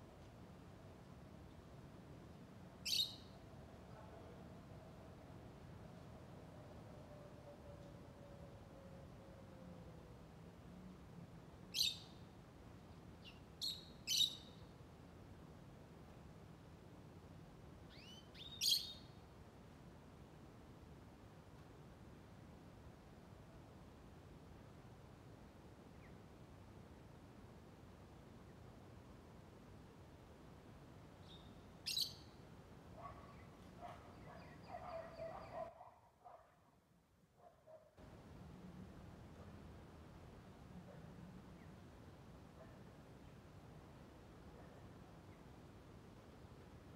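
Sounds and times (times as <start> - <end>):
bird shrill chirp: 13.6 - 14.5, 18.0 - 19.0, 31.3 - 32.3.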